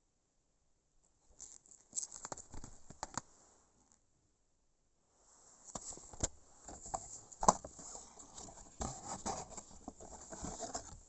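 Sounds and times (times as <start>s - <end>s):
hands rubbing packaging: 5.7s - 11.0s.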